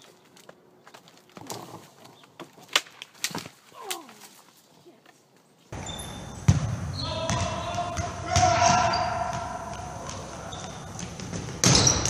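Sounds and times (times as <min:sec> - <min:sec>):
branches cracking: 0:00.0 - 0:05.4.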